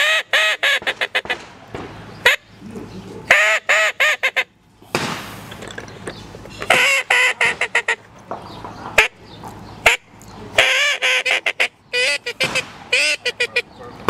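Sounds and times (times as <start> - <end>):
duck call quacks: 0.0 - 1.4, 2.2 - 2.4, 3.3 - 4.5, 6.7 - 8.1, 9.8 - 13.8.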